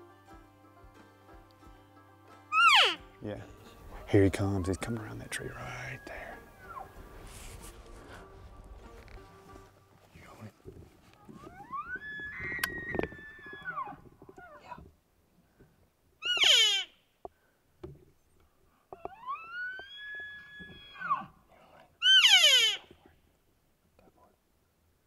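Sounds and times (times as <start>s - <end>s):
elk bugling: 2.5s - 9.8s, 11.1s - 14.8s, 16.2s - 16.9s, 18.9s - 21.4s, 22.0s - 22.9s.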